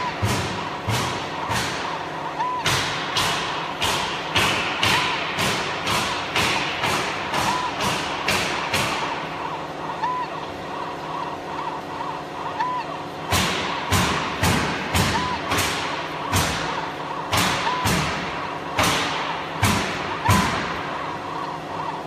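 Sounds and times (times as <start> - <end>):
sharp repeated knocks: 0.0 - 9.5, 13.2 - 21.0
steady machine hum: 0.0 - 22.0.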